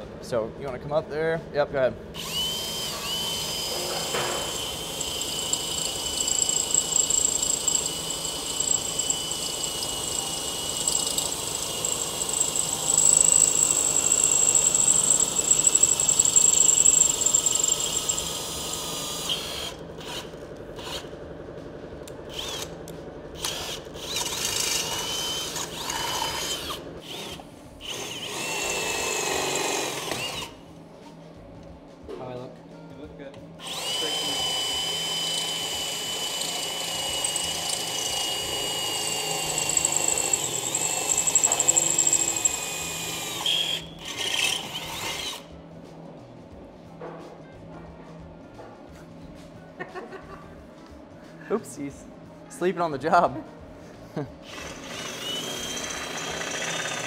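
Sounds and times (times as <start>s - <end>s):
cordless drill whining through metal: 2.2s - 21.1s, 22.3s - 22.7s, 23.4s - 30.6s, 33.6s - 45.4s, 54.5s - 57.0s.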